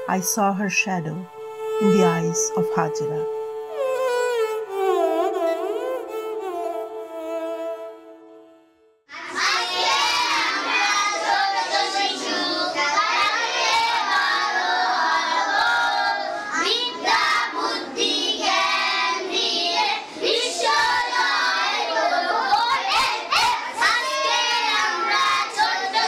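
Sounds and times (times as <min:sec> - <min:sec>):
children singing together: 0:09.1 - 0:26.0.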